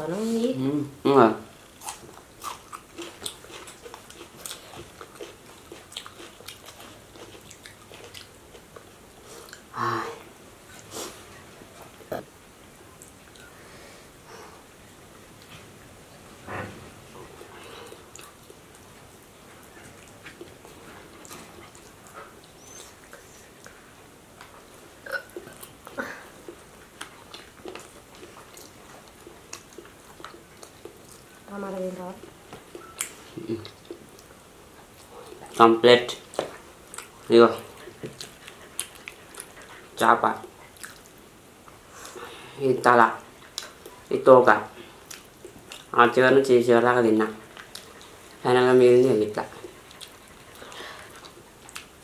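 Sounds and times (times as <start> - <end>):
chewing food: 1.7 - 9.7, 17.2 - 42.3, 42.9 - 46.3, 47.2 - 52.0.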